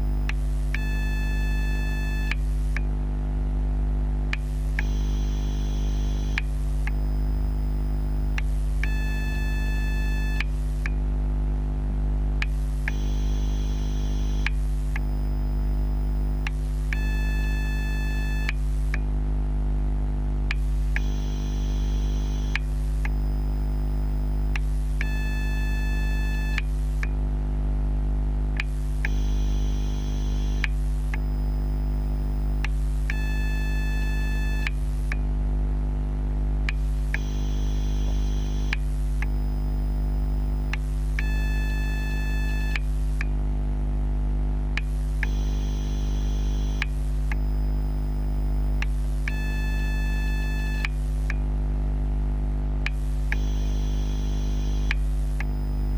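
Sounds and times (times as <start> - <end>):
high electrical whine: 0.0 - 2.8, 4.4 - 11.0, 12.4 - 19.1, 20.4 - 27.1, 28.6 - 35.2, 36.7 - 43.2, 44.8 - 51.3, 52.9 - 55.9
battery charger low hum: 0.0 - 27.5, 28.2 - 43.4, 44.4 - 51.8, 52.6 - 55.9
small clicks: 4.4 - 9.0, 12.4 - 15.4, 20.5 - 23.7, 28.6 - 33.2, 36.7 - 40.9, 44.8 - 47.8, 50.8 - 51.4, 52.9 - 55.9.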